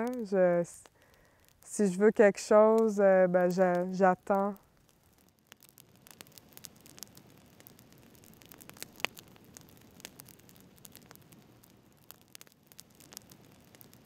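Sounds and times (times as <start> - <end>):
campfire crackling: 0.0 - 14.0
low rush of flame: 3.4 - 14.0
sharp pop of fire: 5.5 - 14.0.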